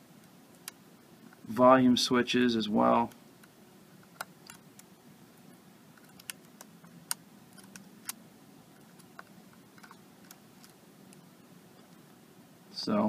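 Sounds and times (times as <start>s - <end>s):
metal tweezers clicking: 6.0s - 8.2s.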